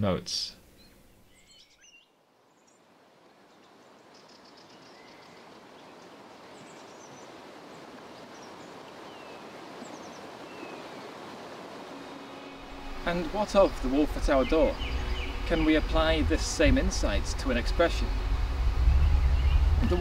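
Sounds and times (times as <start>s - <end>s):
small birds chirping: 0.5s - 20.0s
steady rushing noise: 11.0s - 20.0s.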